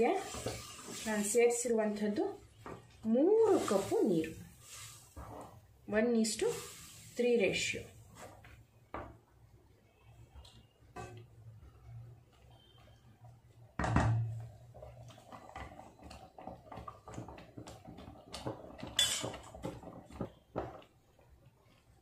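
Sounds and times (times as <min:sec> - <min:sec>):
spatula scraping a pan: 0:03.5 - 0:05.6.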